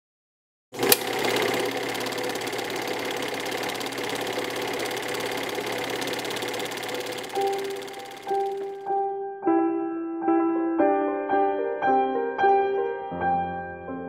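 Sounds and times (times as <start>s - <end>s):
sharp click: 0.8s - 1.1s
film projector clattering: 0.8s - 8.9s.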